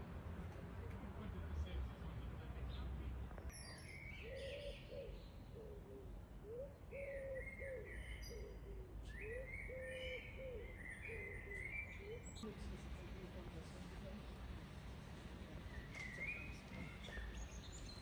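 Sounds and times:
birds singing: 0:03.5 - 0:12.5, 0:15.6 - 0:18.0.

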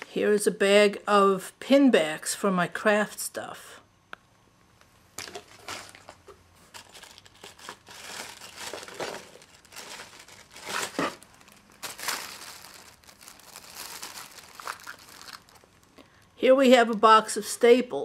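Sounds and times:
plastic packaging crinkling: 0:05.2 - 0:17.1.

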